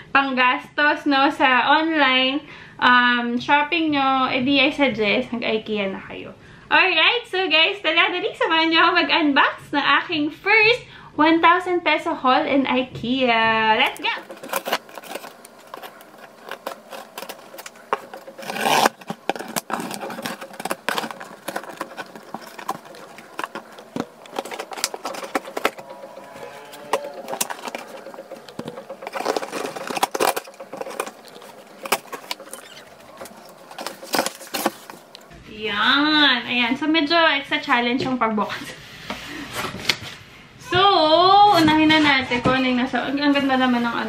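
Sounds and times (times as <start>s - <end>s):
box cutter slicing tape: 13.9s - 35.0s.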